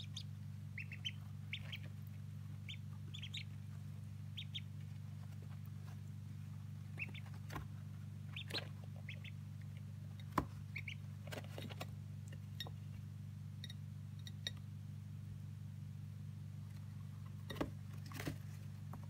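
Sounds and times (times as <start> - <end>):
ducklings peeping: 0.0 - 13.0
steady low hum: 0.0 - 19.0.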